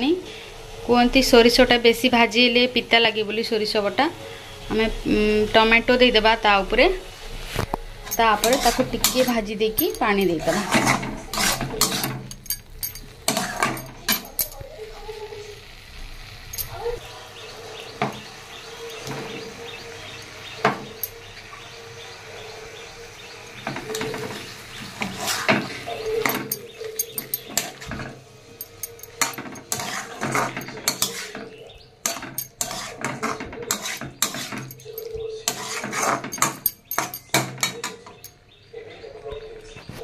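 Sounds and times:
food frying: 4.4 - 36.4
metal spatula scraping a pan: 7.5 - 14.6, 23.6 - 38.3.

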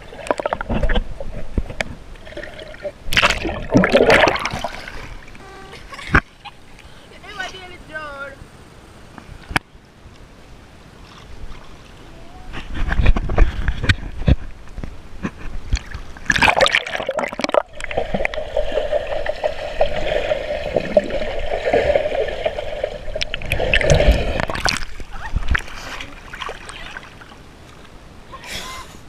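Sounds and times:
pool water splashing: 2.2 - 8.4, 15.7 - 28.8.

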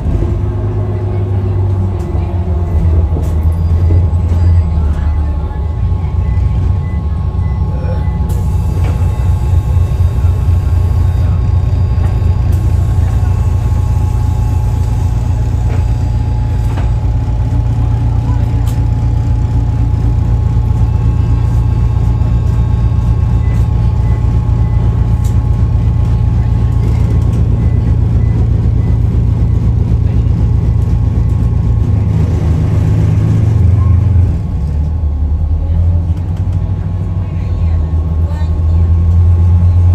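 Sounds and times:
bus engine and road rumble: 0.0 - 39.9.

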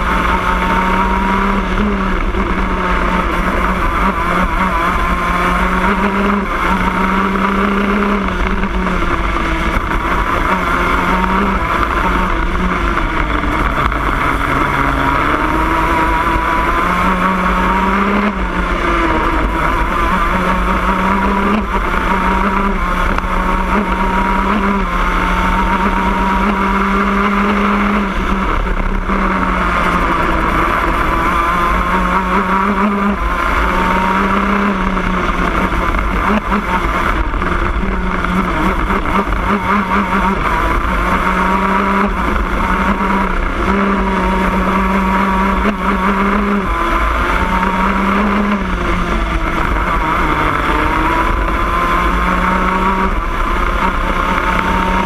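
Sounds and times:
kart engine running hard: 0.0 - 55.0.

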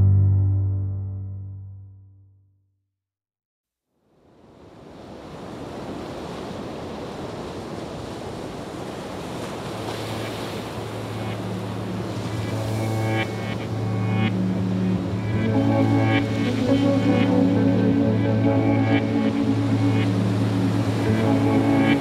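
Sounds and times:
steady rushing noise: 9.8 - 22.0.

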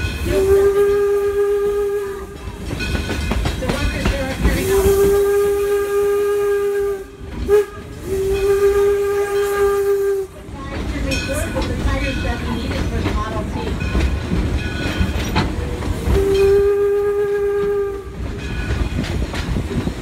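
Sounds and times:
steam locomotive whistle: 0.0 - 2.6, 4.4 - 10.6, 15.6 - 18.8
rumble of moving train: 0.0 - 20.0.

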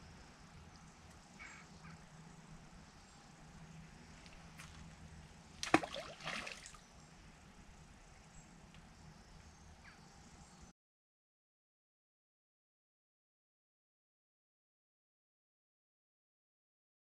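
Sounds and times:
fishing rig splashing into river: 5.6 - 6.8.

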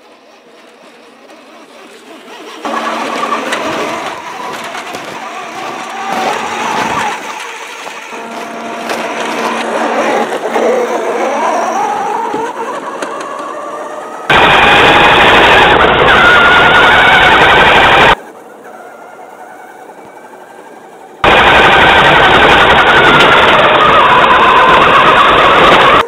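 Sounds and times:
model truck motor drone: 0.0 - 26.0.

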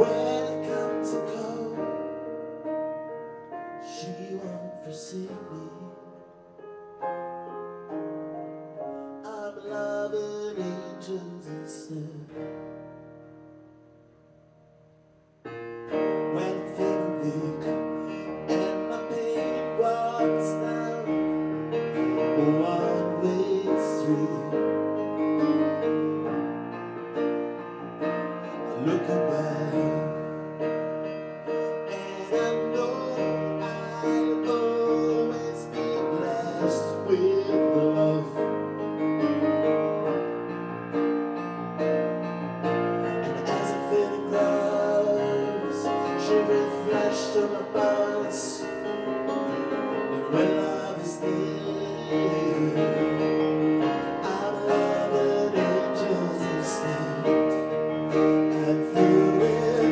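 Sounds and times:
piano playing sustained chords: 0.0 - 59.9.

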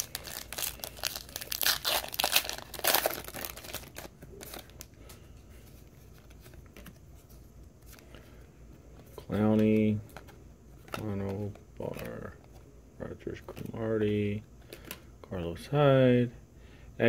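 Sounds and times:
wrapper crinkling and tearing: 0.0 - 4.9.

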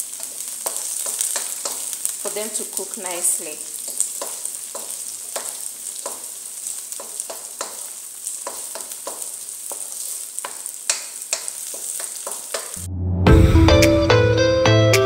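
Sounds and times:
spatula scraping a wok: 0.0 - 2.3, 3.8 - 12.8
vegetables sizzling in oil: 0.0 - 12.9.

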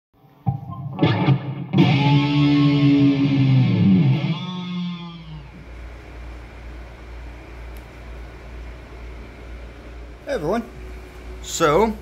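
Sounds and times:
electric guitar chord ringing: 0.4 - 5.6
low steady hum: 2.1 - 12.0.

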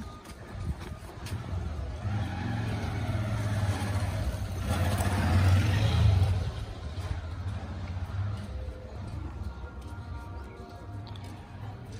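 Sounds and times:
engine humming: 0.0 - 11.9.

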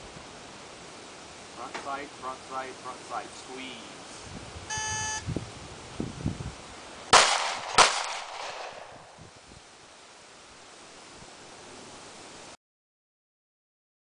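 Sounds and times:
short electronic beep: 4.7 - 5.2
pistol shots: 7.1 - 9.2.

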